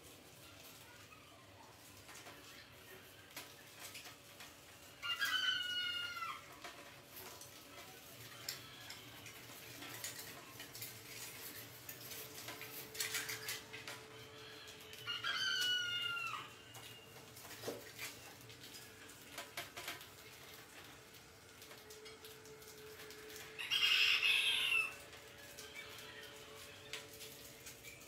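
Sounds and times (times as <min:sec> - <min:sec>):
claws scratching on wire: 0:02.1 - 0:14.0.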